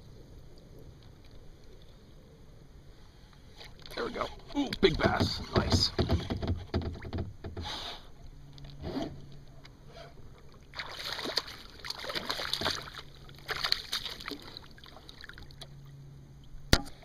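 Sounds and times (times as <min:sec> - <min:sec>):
fish splashing in water: 0:10.7 - 0:15.6.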